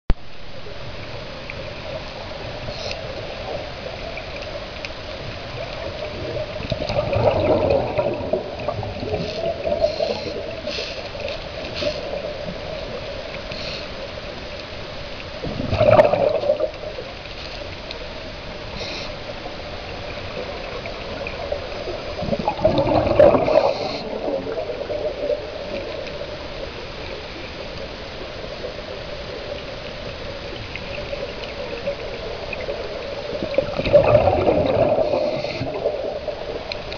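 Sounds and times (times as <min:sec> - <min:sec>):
underwater hum and hiss: 0:00.1 - 0:36.9
diver's exhaled bubbles gurgling: 0:05.2 - 0:13.5, 0:15.4 - 0:17.3, 0:18.6 - 0:36.9.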